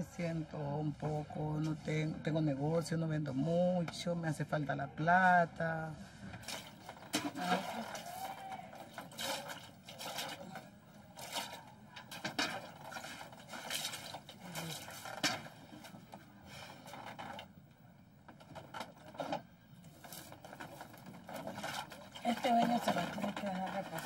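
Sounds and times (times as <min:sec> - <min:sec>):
faint murmured voices: 0:04.7 - 0:13.2
water splashing in a basin: 0:06.4 - 0:16.0, 0:20.1 - 0:24.0.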